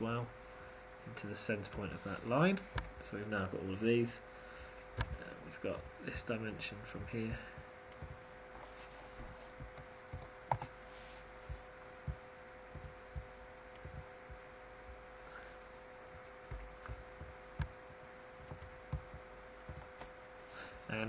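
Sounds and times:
electrical hum: 0:00.0 - 0:21.0
soft low thumps: 0:02.6 - 0:03.2, 0:04.8 - 0:20.2.

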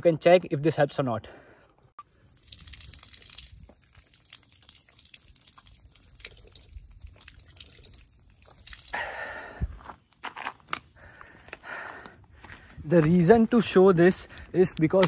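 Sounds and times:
water dripping and trickling: 0:02.0 - 0:10.2.

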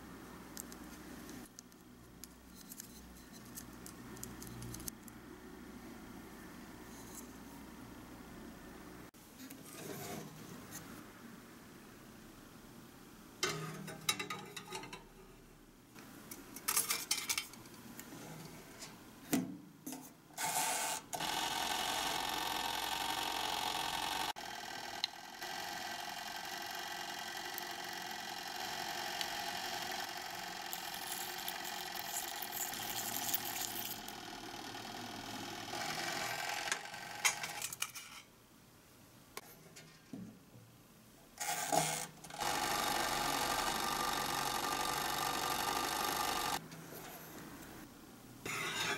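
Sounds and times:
appliance electric hum: 0:20.4 - 0:37.8, 0:41.4 - 0:46.8.

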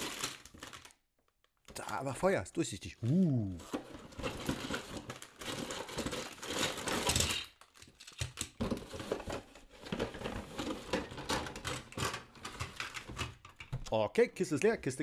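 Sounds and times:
plastic bags crinkling: 0:00.0 - 0:01.0, 0:03.5 - 0:09.1.

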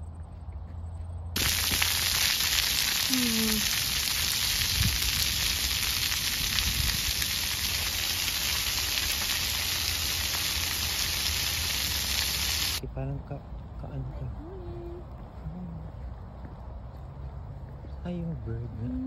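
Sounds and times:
water jets spraying on concrete: 0:01.4 - 0:12.8.

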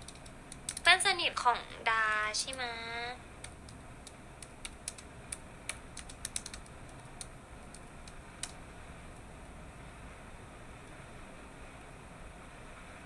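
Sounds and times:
light clicking taps like typing: 0:00.0 - 0:00.9, 0:03.4 - 0:08.6
faint steady hiss: 0:00.0 - 0:13.0.

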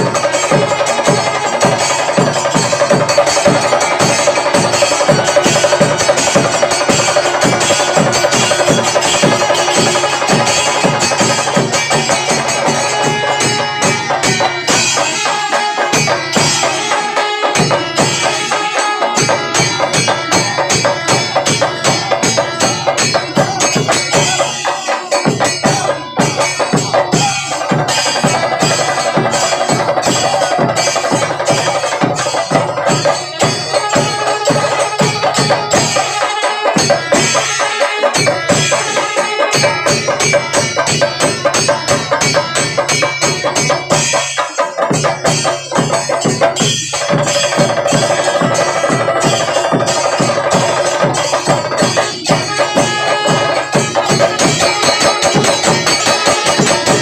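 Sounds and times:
cymbals beating: 0:00.0 - 0:57.0
drums beating fast rhythm: 0:00.0 - 0:57.0.

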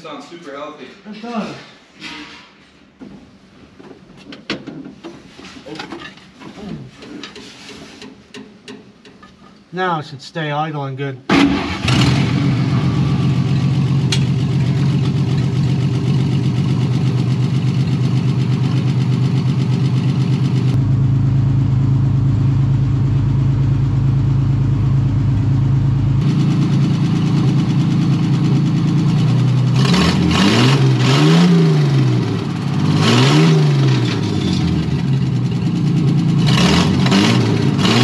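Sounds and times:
truck engine idling and revving: 0:11.3 - 0:38.0.

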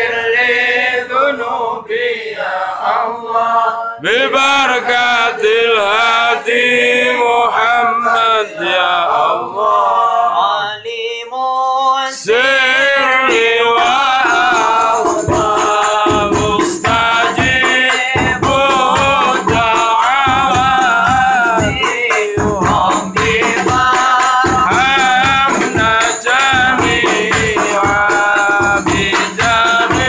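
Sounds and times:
group of voices chanting: 0:00.0 - 0:10.8
frame drums struck rhythmically: 0:04.4 - 0:07.8, 0:12.4 - 0:30.0.

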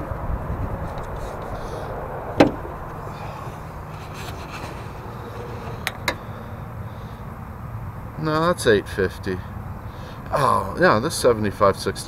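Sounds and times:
steady low rumble: 0:00.0 - 0:08.2
sharp knock: 0:02.4 - 0:02.7.

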